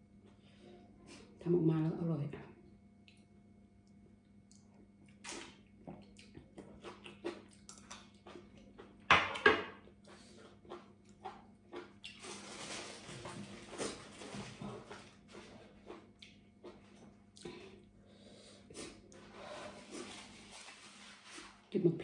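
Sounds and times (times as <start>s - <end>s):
mouth smacks and chewing: 3.0s - 9.0s, 10.1s - 12.2s, 15.8s - 17.5s.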